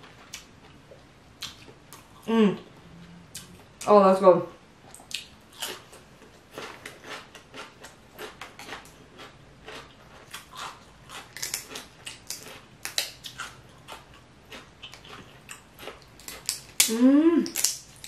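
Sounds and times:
chewing: 4.9 - 18.0.

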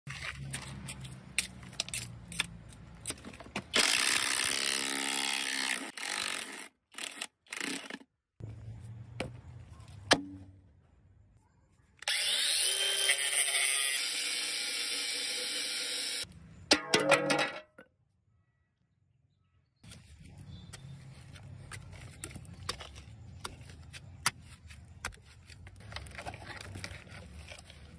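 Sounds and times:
angle grinder grinding steel: 12.0 - 16.3
loud steady tool noise: 12.0 - 16.3.

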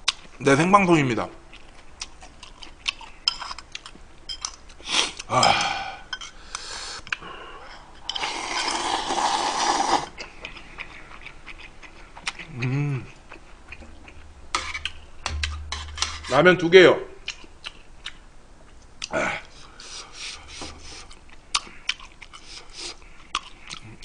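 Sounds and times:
person slurping broth: 8.1 - 10.2.

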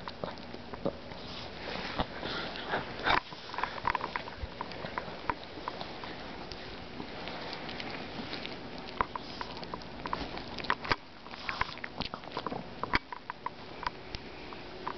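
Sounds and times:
teeth clicking and crunching: 0.0 - 1.2, 2.0 - 14.2
dog chewing a treat: 0.0 - 14.9.

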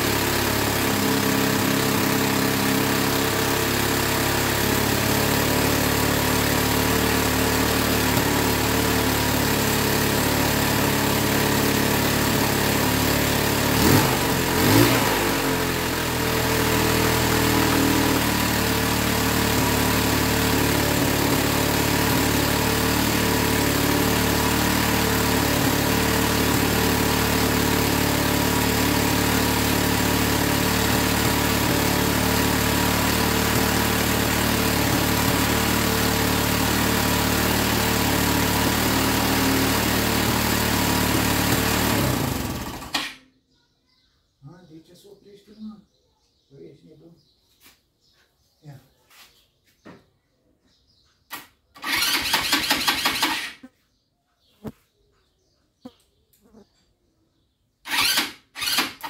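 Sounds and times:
atv engine idling and revving: 0.0 - 43.2, 51.3 - 53.7, 57.8 - 59.0.

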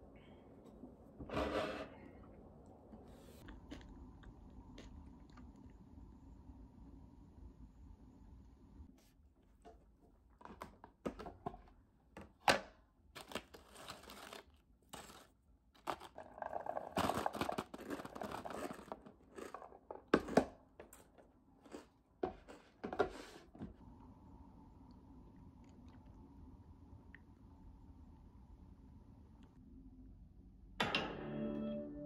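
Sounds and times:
plastic container crinkling: 13.2 - 21.0.

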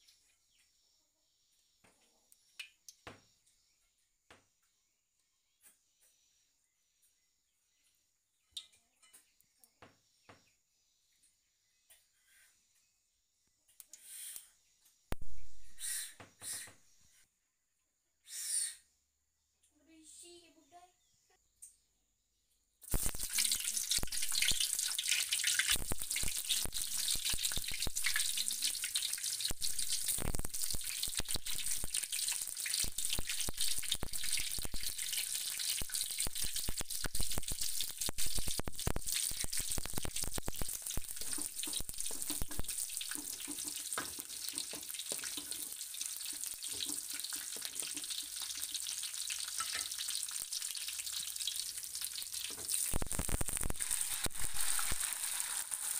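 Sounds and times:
garlic sizzling in oil: 22.8 - 55.9.

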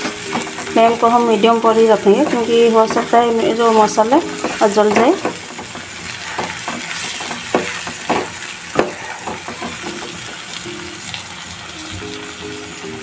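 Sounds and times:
soft background music: 0.0 - 7.2, 9.1 - 13.0
masala sizzling in a pan: 0.0 - 13.0
utensil scraping a pan: 2.1 - 10.3.

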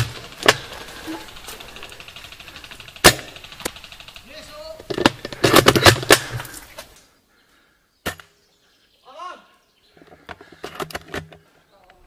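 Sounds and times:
airsoft gunshots: 2.2 - 4.8.

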